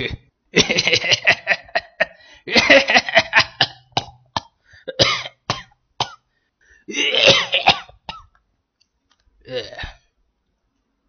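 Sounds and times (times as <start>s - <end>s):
person coughing: 0.0s - 6.2s, 6.9s - 8.3s.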